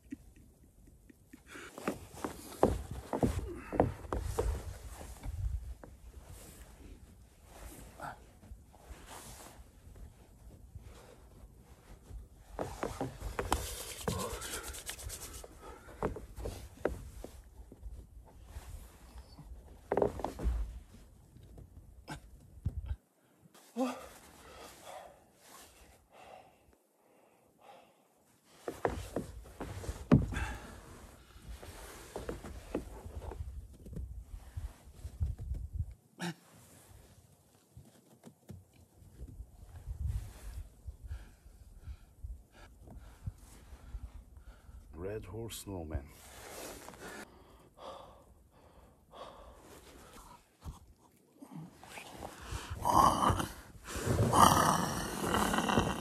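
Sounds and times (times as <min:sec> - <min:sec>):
wind rumble on microphone: 0:04.2 - 0:06.3, 0:33.2 - 0:36.0, 0:39.2 - 0:44.4
hands scraping snow: 0:12.5 - 0:17.4, 0:46.2 - 0:47.2, 0:51.8 - 0:56.0.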